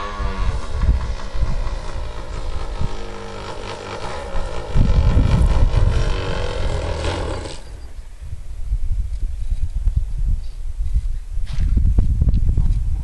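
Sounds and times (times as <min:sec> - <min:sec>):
model plane engine: 0:00.0 - 0:08.0
wind buffeting microphone: 0:00.0 - 0:13.0.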